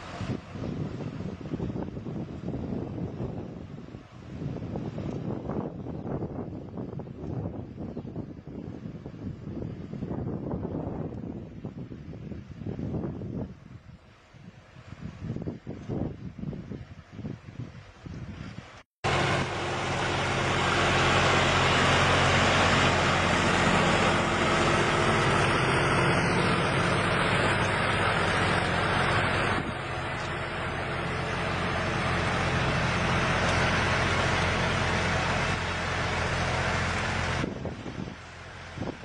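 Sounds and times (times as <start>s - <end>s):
tractor engine running: 19.0s - 39.0s.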